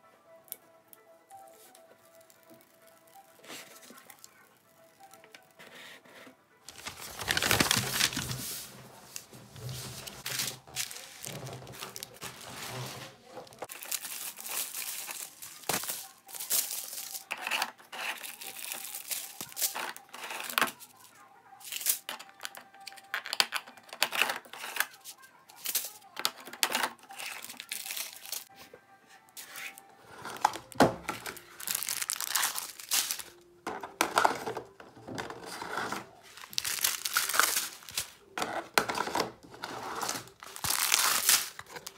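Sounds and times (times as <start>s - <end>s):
plastic bags crinkling: 6.7s - 20.9s, 24.0s - 28.5s, 29.6s - 33.4s, 34.1s - 41.9s.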